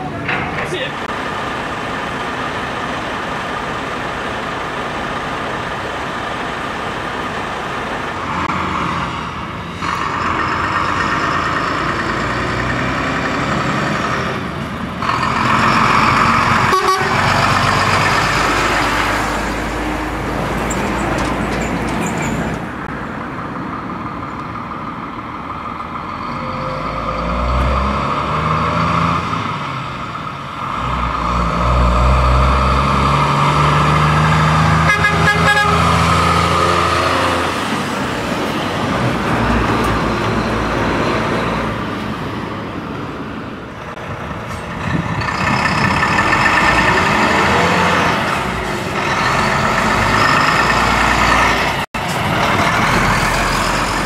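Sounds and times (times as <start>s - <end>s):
lorry diesel engines passing: 0.0s - 54.0s
long horn blasts: 16.7s - 17.3s, 34.8s - 36.2s.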